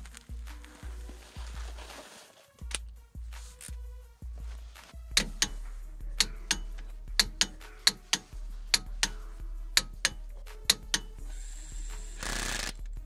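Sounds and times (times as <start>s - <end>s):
socket ratchet clicking: 5.1s - 11.2s, 12.1s - 12.9s.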